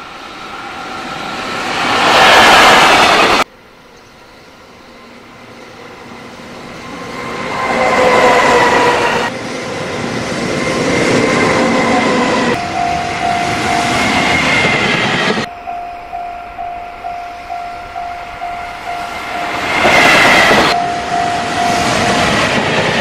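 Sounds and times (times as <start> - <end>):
freight train passing: 0.0 - 23.0
level crossing warning bell: 12.5 - 22.8.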